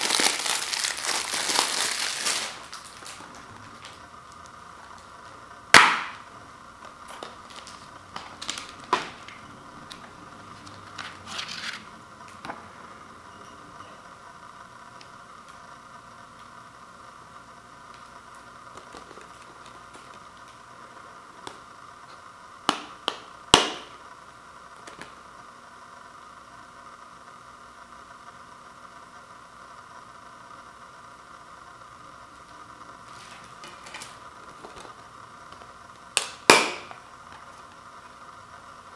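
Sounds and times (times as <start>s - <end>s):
paper rustle: 10.6s - 11.9s.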